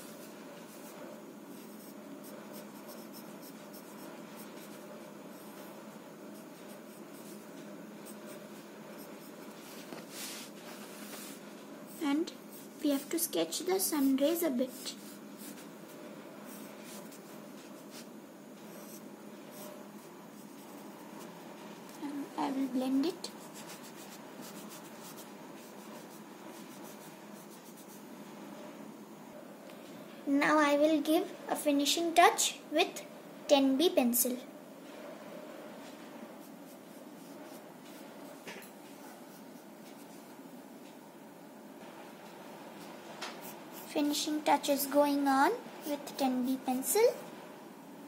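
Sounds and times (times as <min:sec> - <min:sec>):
pencil scratching on paper: 0:00.0 - 0:13.2, 0:13.9 - 0:22.0, 0:23.0 - 0:28.1.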